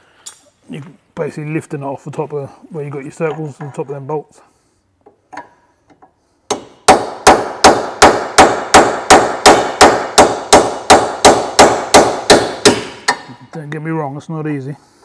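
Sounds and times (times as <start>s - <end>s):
hammer striking a chisel on metal: 6.5s - 13.3s.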